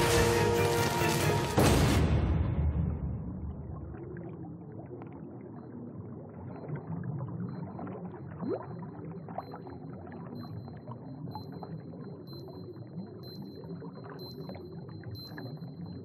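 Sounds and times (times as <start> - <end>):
crash: 0.0 - 3.9
underwater churning rumble: 1.6 - 6.4
rising bubble: 2.7 - 10.3.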